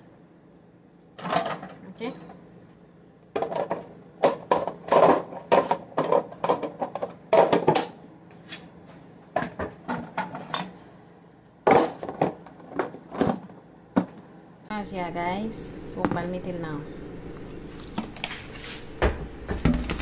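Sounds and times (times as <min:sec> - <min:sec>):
plastic containers and dishes clattering: 0:01.2 - 0:01.8, 0:03.4 - 0:08.0, 0:11.7 - 0:14.2, 0:19.5 - 0:20.0.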